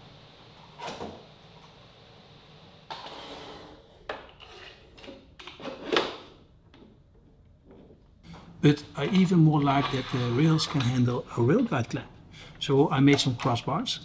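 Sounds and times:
clamp scraping slide: 9.0 - 11.0.

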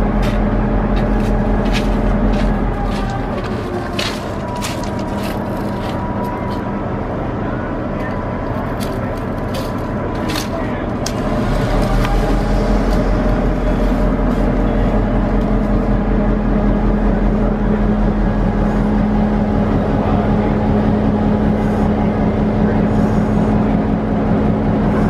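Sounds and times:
diesel locomotive engine rumbling: 0.0 - 25.0.

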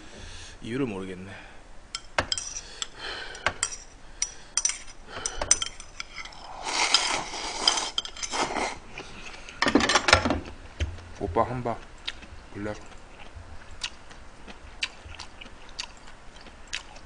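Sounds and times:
utensil clinking against bowl: 2.0 - 2.9, 3.5 - 8.5
slurping broth: 6.0 - 9.5.

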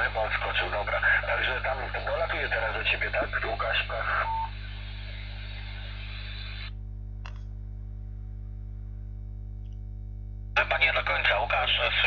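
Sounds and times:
radio receiver hiss: 0.0 - 6.8
steady low hum: 0.0 - 12.0
click: 7.2 - 7.5, 9.6 - 9.9.

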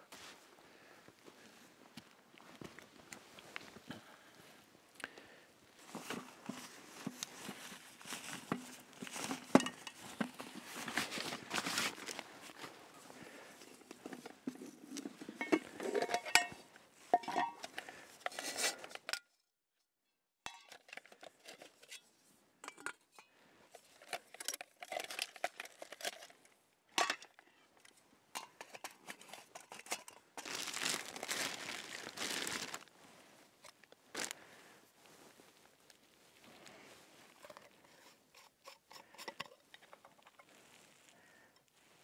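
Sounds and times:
plastic bag crinkling: 7.9 - 12.3, 29.7 - 32.9, 34.1 - 34.4
camping cookware clinking: 8.2 - 11.1, 13.6 - 19.3, 20.4 - 30.9, 37.4 - 41.7.

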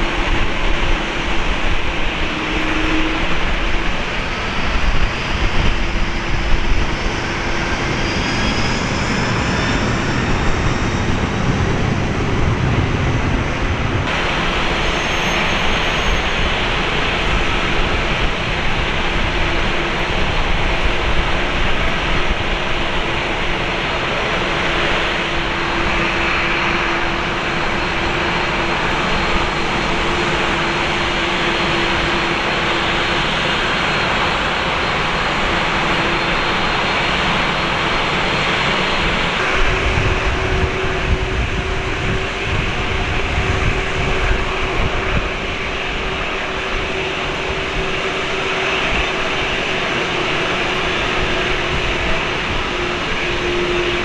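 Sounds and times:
faint high whine: 0.0 - 22.2
jet engines whine and rumble: 0.0 - 54.0.

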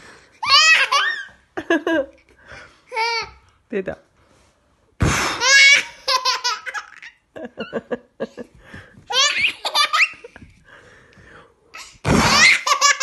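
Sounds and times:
baby laughing: 0.4 - 1.4, 5.3 - 7.3, 9.1 - 10.4, 11.8 - 13.0.

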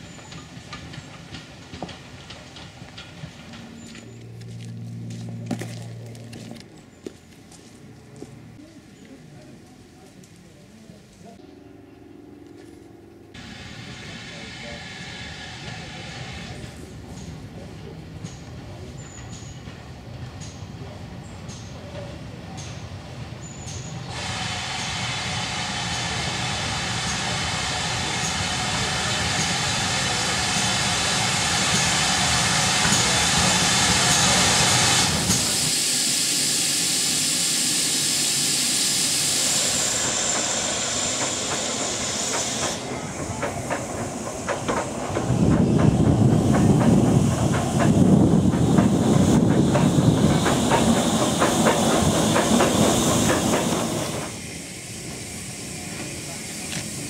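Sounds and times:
train clicking and rumbling by: 0.0 - 57.0
steam hissing: 13.4 - 17.5, 23.7 - 57.0.

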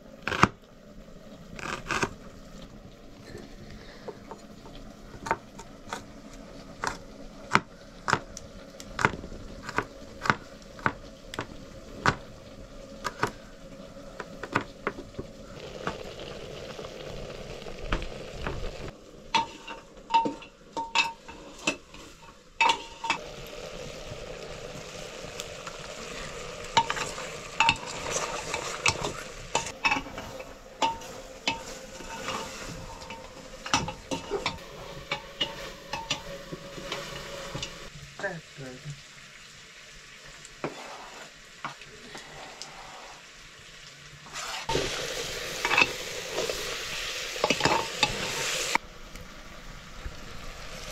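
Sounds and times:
food sizzling: 0.0 - 50.9
metal spoon scraping metal pot: 19.4 - 23.2, 26.8 - 37.9.

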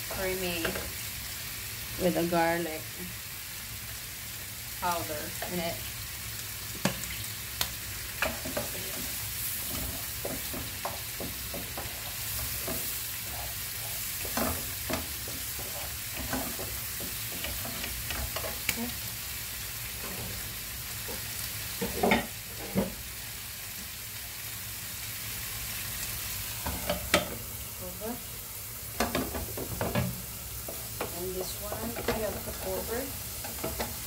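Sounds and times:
mushrooms sizzling in a frying pan: 0.0 - 34.0
wooden spatula scraping a pan: 8.2 - 18.9, 19.9 - 23.0.

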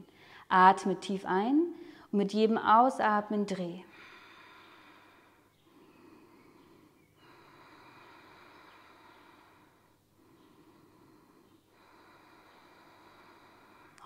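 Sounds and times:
slow deep breathing: 3.9 - 14.0.

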